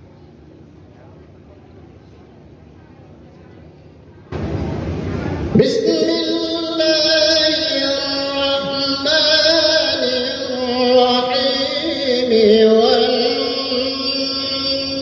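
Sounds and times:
man reciting melodically: 5.6s - 15.0s.

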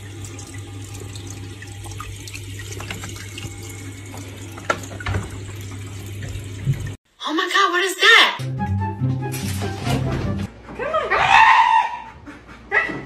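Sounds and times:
water trickling into tank: 0.0s - 7.0s.

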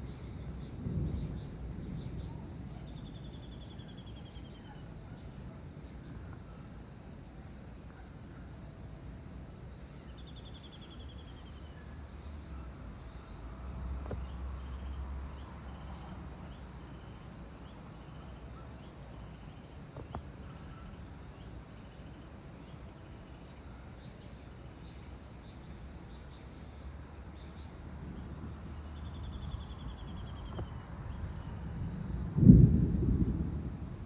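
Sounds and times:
distant thunder rumbling: 0.0s - 6.9s, 13.8s - 34.0s
insects chirping: 0.0s - 34.0s.

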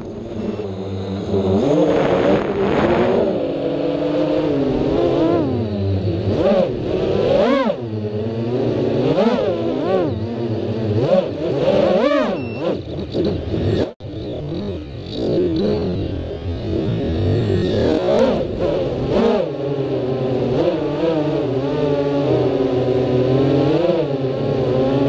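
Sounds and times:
quadcopter motors whining: 0.0s - 21.0s
wind rushing: 1.2s - 5.0s.

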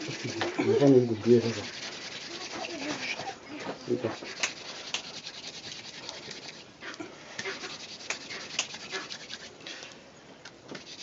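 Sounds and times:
wood rasping on wood: 0.0s - 3.3s, 4.0s - 6.6s, 7.4s - 9.5s.

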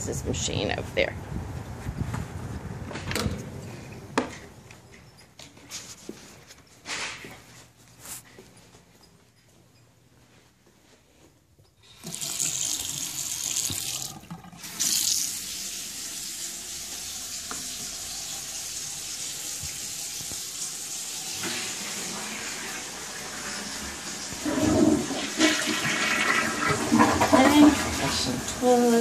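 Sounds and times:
tap running into basin: 12.0s - 15.6s.

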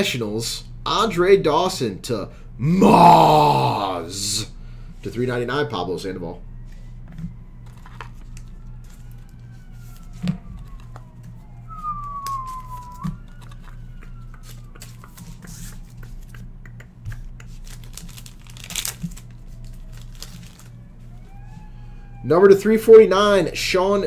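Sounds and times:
steady low hum: 0.0s - 24.0s
plastic and card crinkling: 7.2s - 16.4s, 17.1s - 21.2s
cards tapping sharp clicks: 12.2s - 17.9s.

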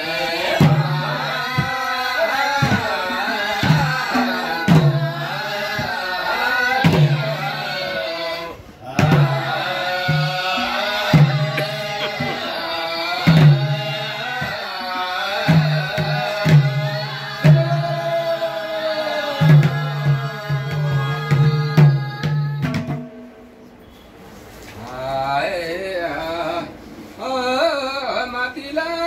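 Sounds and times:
group singing: 0.0s - 23.0s.

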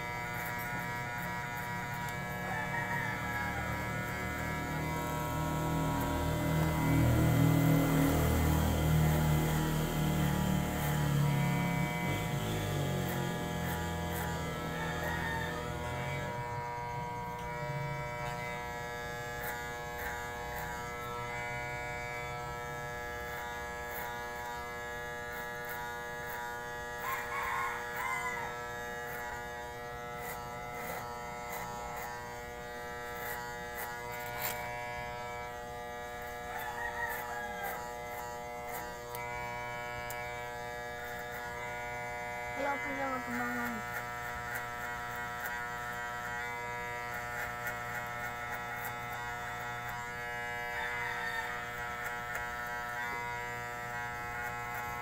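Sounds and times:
electric hair clipper buzzing: 0.0s - 55.0s
rooster crowing: 2.0s - 7.2s, 14.1s - 18.4s, 27.0s - 28.8s, 36.2s - 38.4s, 50.6s - 52.2s.

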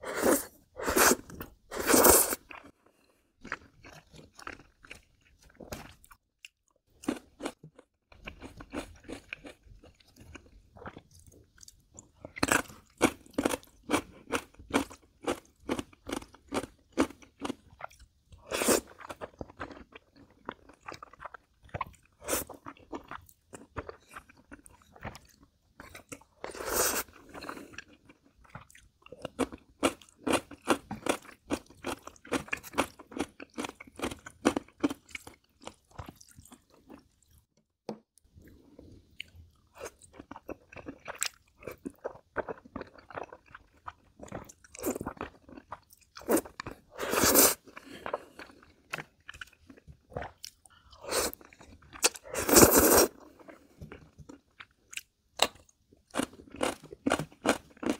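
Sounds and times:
slurping noodles: 0.0s - 2.6s, 26.5s - 27.5s, 46.2s - 48.1s, 52.1s - 53.7s.

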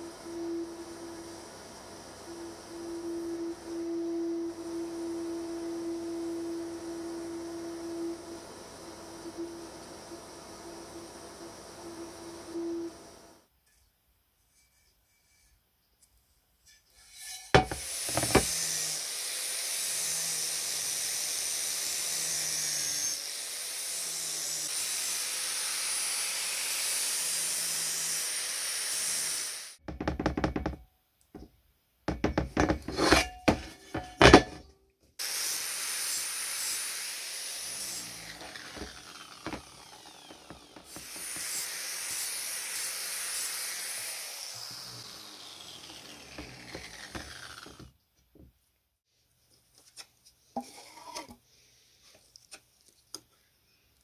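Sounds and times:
angle grinder grinding metal: 0.0s - 13.1s, 16.9s - 30.8s, 32.1s - 48.0s
sharp knocks and clatter: 29.8s - 31.5s, 32.1s - 34.7s.

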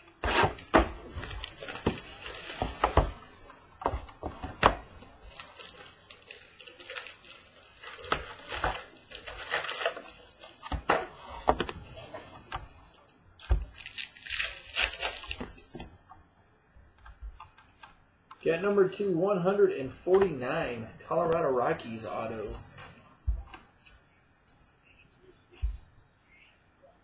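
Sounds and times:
card packs rustling: 0.0s - 15.8s.

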